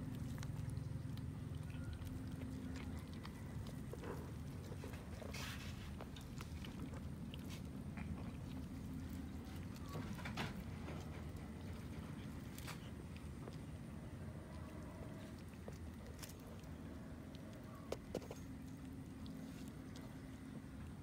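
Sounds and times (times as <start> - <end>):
cats chewing and tearing: 0.0 - 21.0
low hum: 0.0 - 21.0.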